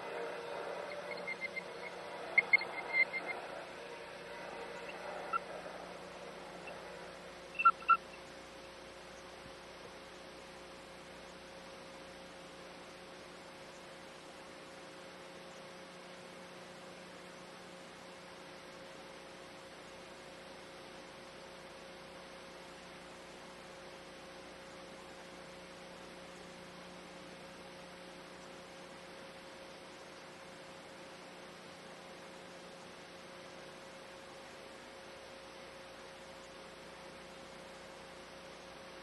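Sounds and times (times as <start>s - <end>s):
thin steady tone: 0.0s - 8.8s
low hum: 0.0s - 19.4s
faint steady hiss: 0.0s - 39.0s.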